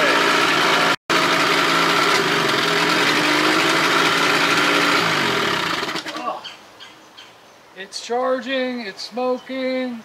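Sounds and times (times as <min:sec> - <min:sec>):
outboard engine running: 0:00.0 - 0:06.2.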